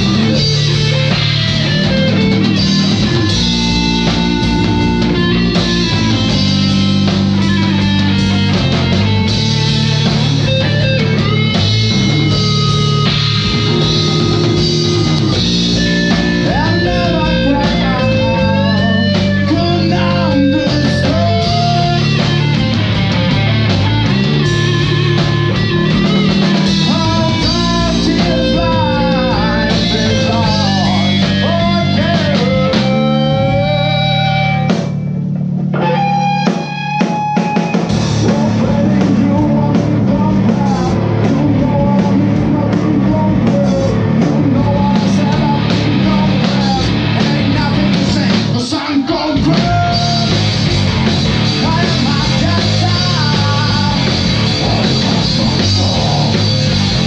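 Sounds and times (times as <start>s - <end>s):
electric guitar melody: 0.0s - 57.0s
rock band playing: 0.0s - 57.0s.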